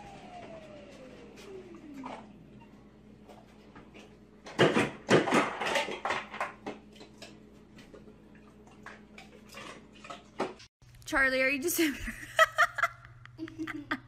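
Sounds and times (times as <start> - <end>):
ice dispenser clattering: 4.5 - 7.3.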